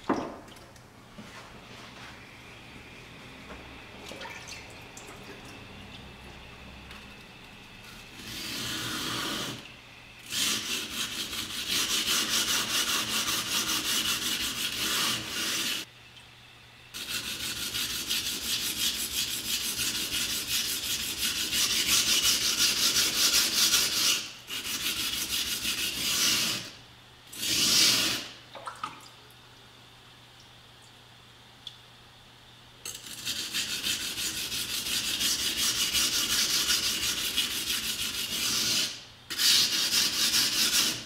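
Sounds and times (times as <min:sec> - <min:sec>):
knife grinding on whetstone: 0:07.9 - 0:09.6, 0:32.9 - 0:41.0.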